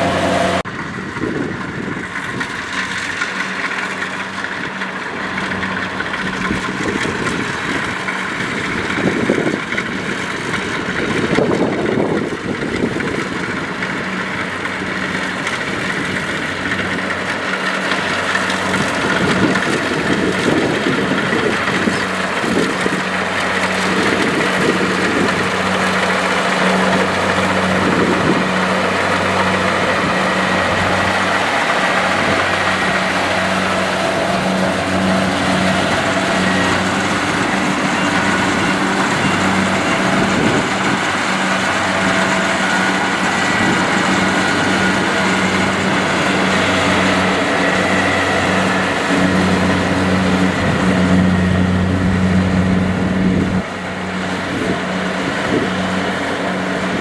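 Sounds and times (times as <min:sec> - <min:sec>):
diesel engine hum: 0:00.0 - 0:57.0.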